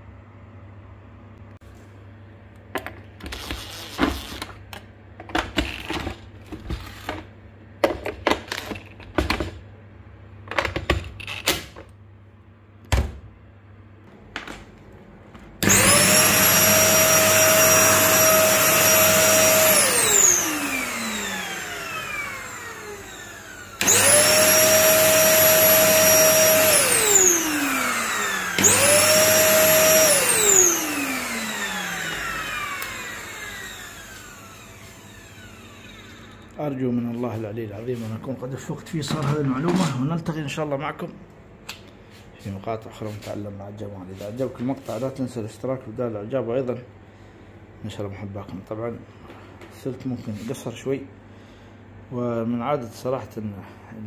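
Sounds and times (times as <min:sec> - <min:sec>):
drill driving screws: 0:15.6 - 0:36.4
vacuum cleaner motor whining: 0:15.6 - 0:36.6.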